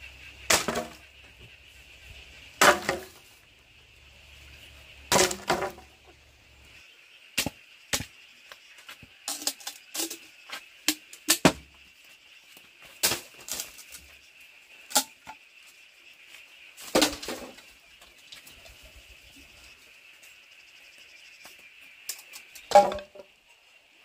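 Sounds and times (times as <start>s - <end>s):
bamboo knocking and cracking: 0.5s - 1.5s, 2.6s - 3.3s, 5.1s - 6.1s, 7.4s - 11.9s, 12.9s - 14.1s, 14.9s - 15.4s, 16.8s - 17.7s, 21.4s - 23.3s.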